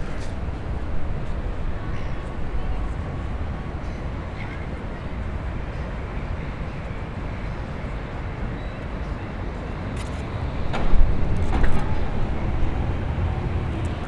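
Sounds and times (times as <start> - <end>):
road traffic: 0.0 - 14.0
passing vehicle rumble: 10.2 - 14.0.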